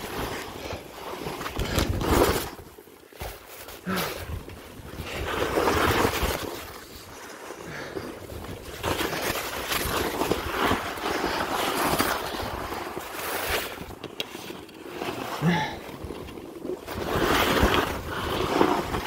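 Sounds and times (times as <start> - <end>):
skis scraping over snow: 0.0 - 19.0.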